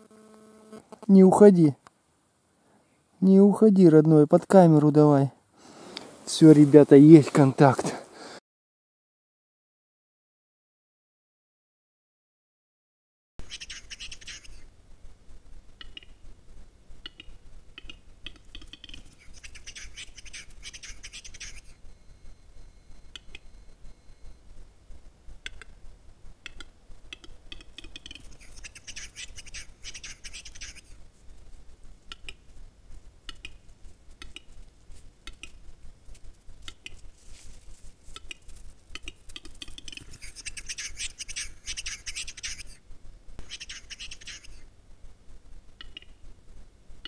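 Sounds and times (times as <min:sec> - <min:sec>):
bird clicking and whetting song: 0:13.4 - 0:14.6, 0:15.8 - 0:16.2, 0:17.0 - 0:21.8, 0:23.0 - 0:23.5, 0:25.4 - 0:25.8, 0:26.4 - 0:31.0, 0:32.0 - 0:32.5, 0:33.2 - 0:35.7, 0:36.5 - 0:42.8, 0:43.4 - 0:44.6, 0:45.8 - 0:46.2.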